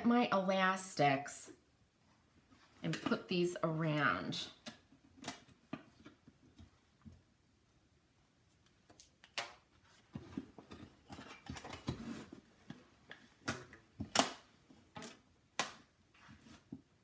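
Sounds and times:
rustling and handling of box: 0:09.8 - 0:14.0.

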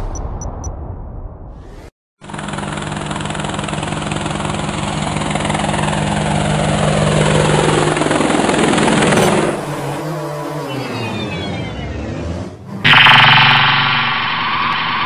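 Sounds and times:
drone rotors buzzing: 0:06.6 - 0:15.0.

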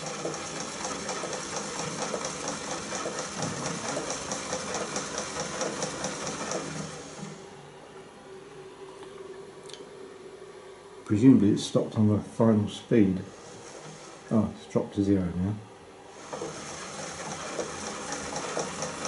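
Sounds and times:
film projector clattering: 0:00.0 - 0:07.3, 0:16.2 - 0:19.0.

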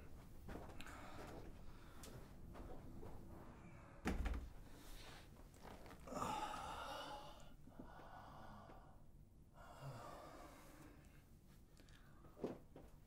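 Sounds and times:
man sighing: 0:06.0 - 0:07.5.

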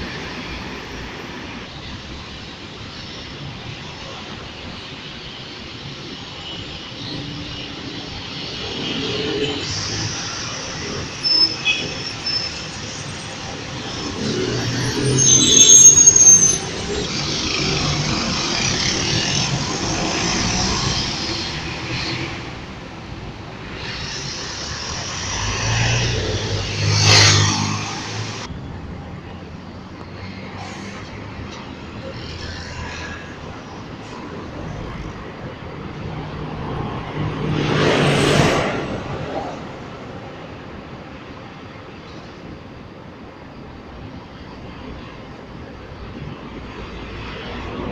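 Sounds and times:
bus passing: 0:00.0 - 0:47.9
traffic: 0:00.0 - 0:47.9
high-pitched brake squeals: 0:09.0 - 0:17.8.

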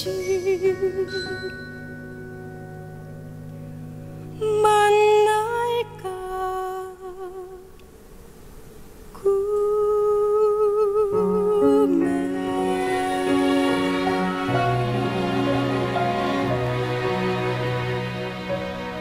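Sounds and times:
musical theatre ballad singing: 0:00.0 - 0:02.0, 0:09.3 - 0:18.4
soft accompaniment: 0:00.0 - 0:07.6, 0:09.2 - 0:19.0.

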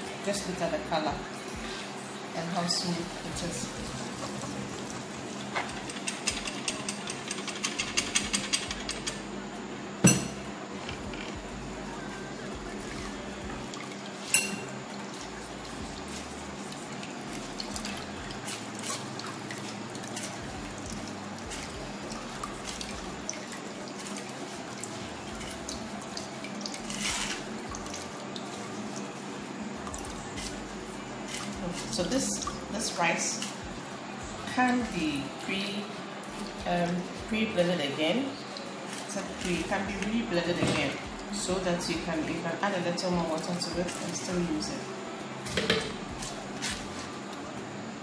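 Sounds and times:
liquid pouring through sieve: 0:12.8 - 0:32.7
spoon scraping in sieve: 0:26.9 - 0:27.5.

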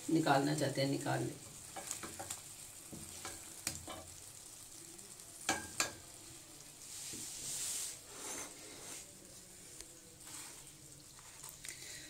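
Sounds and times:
soft hiss: 0:00.0 - 0:12.0
spoon tapping steel pot: 0:05.5 - 0:06.0.

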